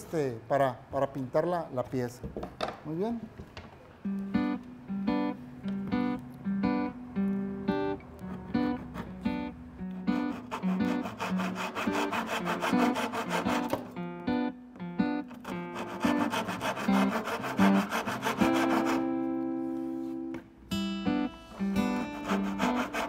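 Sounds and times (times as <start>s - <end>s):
acoustic guitar music: 4.0s - 23.0s
handsaw cutting wood: 8.2s - 9.4s, 10.0s - 13.8s, 15.3s - 19.1s, 21.9s - 23.0s.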